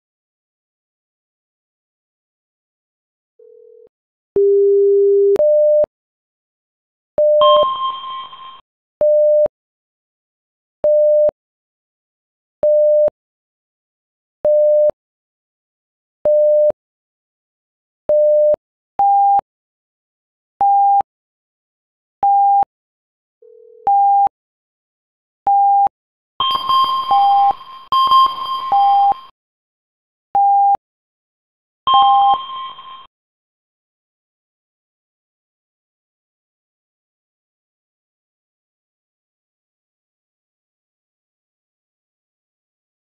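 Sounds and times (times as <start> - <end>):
electronic alert beeps: 7.2 - 8.3, 26.4 - 29.3.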